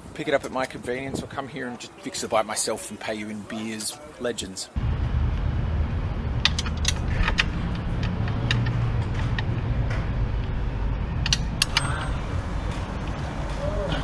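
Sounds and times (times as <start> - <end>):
steady low rumble: 4.8 - 14.0.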